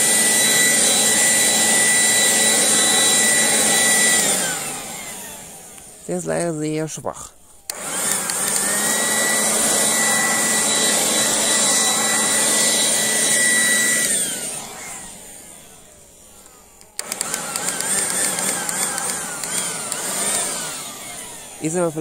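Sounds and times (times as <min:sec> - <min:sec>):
leaf blower whining: 0:00.0 - 0:22.0.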